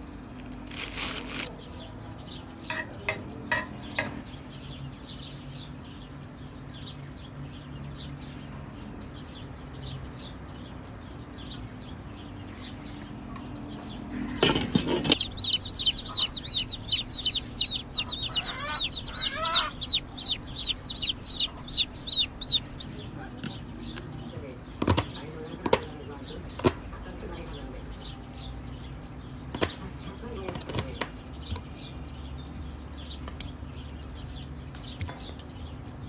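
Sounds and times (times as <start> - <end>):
chicks peeping: 1.0 - 36.0
low steady hum: 11.1 - 30.4.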